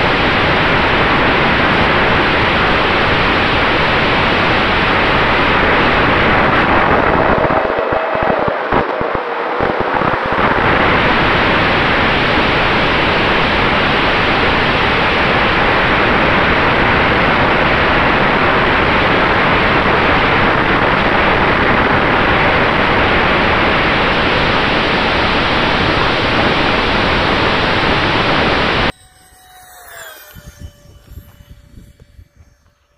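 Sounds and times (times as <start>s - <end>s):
electric ducted fans running: 0.0s - 32.9s
wind rushing over camera: 0.0s - 32.9s
faint steady tone: 28.3s - 32.9s.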